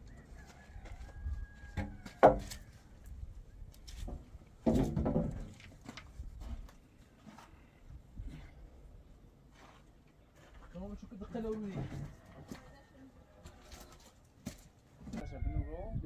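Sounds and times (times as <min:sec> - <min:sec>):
wooden poles knocking and scraping: 0:00.0 - 0:03.2, 0:03.8 - 0:07.6, 0:09.6 - 0:15.3.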